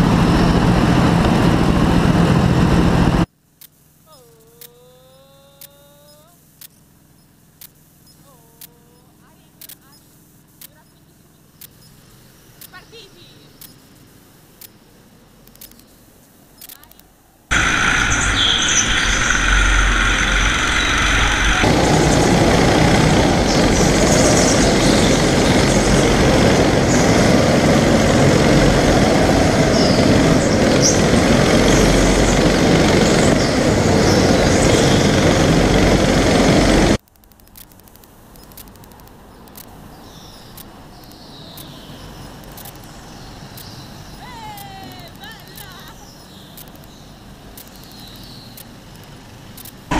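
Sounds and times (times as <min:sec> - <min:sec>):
high whine: 0:17.5 - 0:37.0
kart engine: 0:17.5 - 0:37.0
karts running around track: 0:17.5 - 0:37.0
rushing air: 0:17.5 - 0:37.0.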